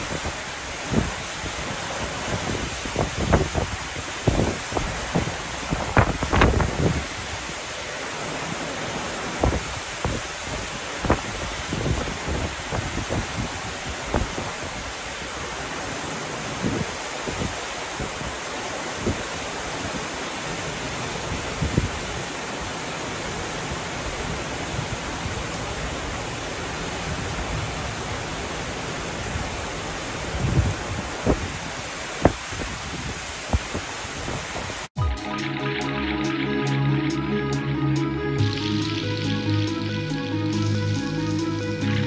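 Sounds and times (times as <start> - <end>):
wind buffeting microphone: 0.0 - 7.6, 9.4 - 15.0, 30.2 - 34.9
heavy rain falling: 0.0 - 42.0.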